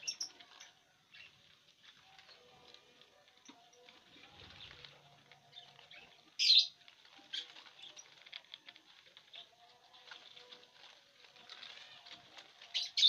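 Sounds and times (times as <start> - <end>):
husk crackling and ripping: 5.8 - 13.0.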